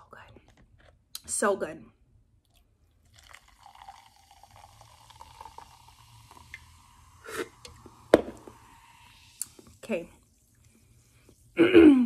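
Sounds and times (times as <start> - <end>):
drink pouring and fizzing into cup: 2.4 - 11.6
person sipping: 2.4 - 11.6.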